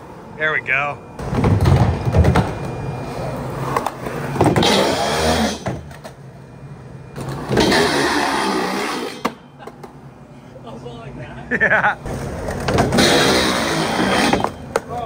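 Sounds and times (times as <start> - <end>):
skateboard trucks grinding on steel: 3.5 - 5.9, 7.2 - 9.4, 12.1 - 14.8
skateboard wheels rolling on concrete: 7.2 - 10.0, 12.0 - 15.0.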